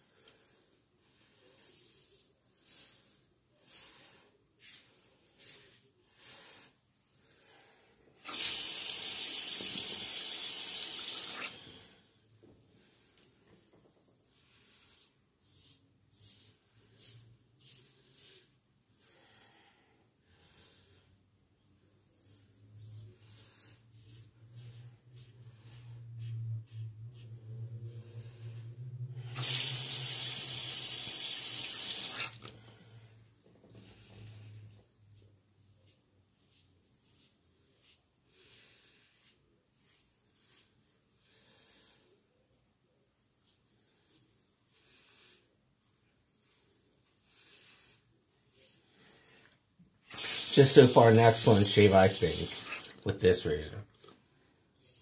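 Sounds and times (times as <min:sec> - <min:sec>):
sink tap running: 0:50.2 - 0:50.8, 0:51.6 - 0:53.0.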